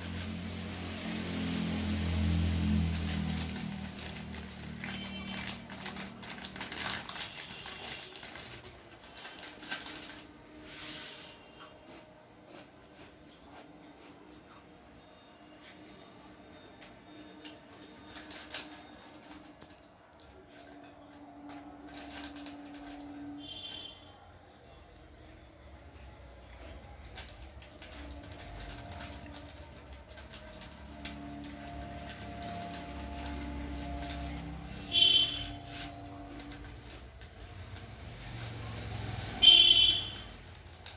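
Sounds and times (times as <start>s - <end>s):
plastic chip packet crackling: 0.0s - 10.6s, 17.4s - 23.9s, 26.6s - 40.9s.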